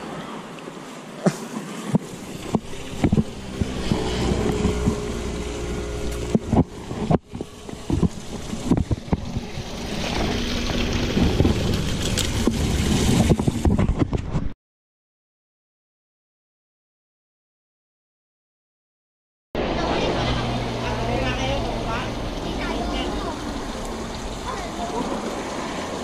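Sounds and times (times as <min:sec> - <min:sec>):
water splashing: 0:00.0 - 0:14.1, 0:19.6 - 0:26.0
knocks and clicks: 0:01.9 - 0:05.1, 0:06.1 - 0:09.5
wind rumble on microphone: 0:01.9 - 0:14.6.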